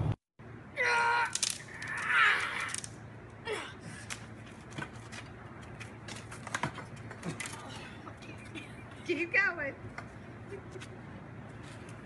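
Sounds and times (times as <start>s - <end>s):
boy shouting: 0.8s - 2.7s.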